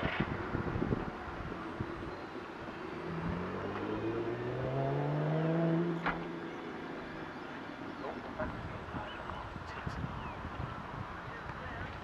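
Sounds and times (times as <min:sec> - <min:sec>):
motor drone rising in pitch: 0:01.9 - 0:07.7.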